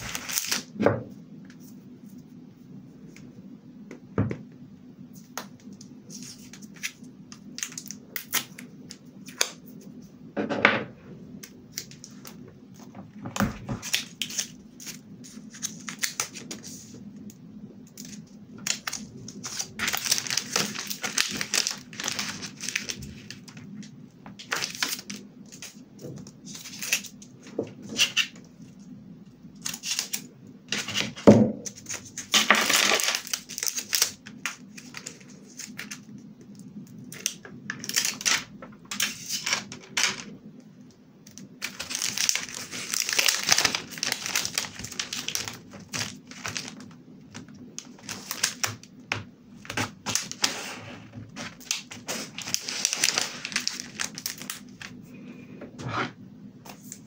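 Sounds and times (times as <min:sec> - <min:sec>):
plastic film and foil crinkling: 0:00.0 - 0:00.8, 0:05.2 - 0:09.9, 0:11.4 - 0:28.9, 0:29.6 - 0:40.3, 0:41.3 - 0:55.0
tape peeled and torn: 0:00.1 - 0:00.7.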